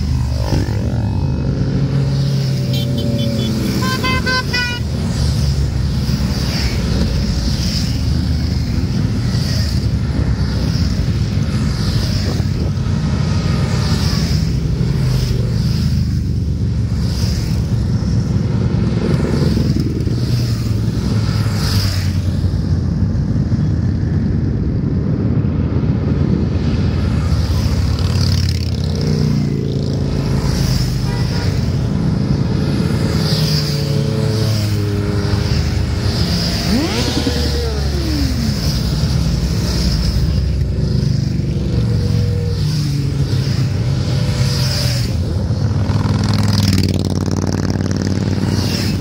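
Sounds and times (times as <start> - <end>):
motorcycles riding past: 0.0 - 49.0.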